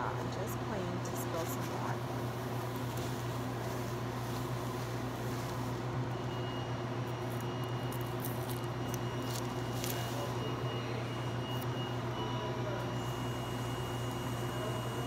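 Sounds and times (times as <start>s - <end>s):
paper towels rustling: 2.6s - 5.9s.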